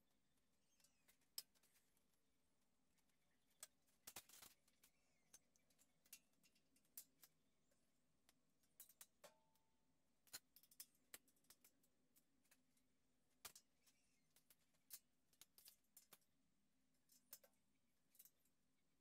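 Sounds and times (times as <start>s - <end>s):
faint metal clicks: 2.9s - 9.6s, 10.2s - 16.4s, 17.0s - 18.6s.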